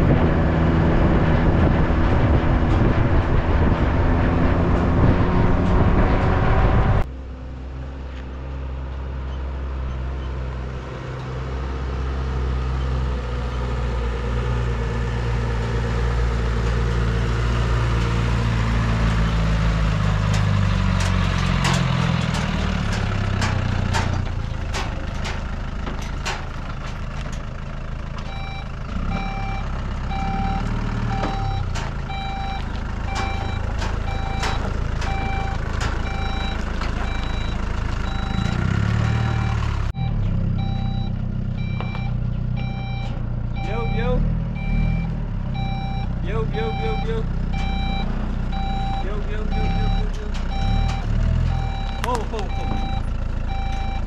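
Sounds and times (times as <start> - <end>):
truck engine revving: 0.0 - 54.0
reversing alarm beeping: 28.3 - 54.0.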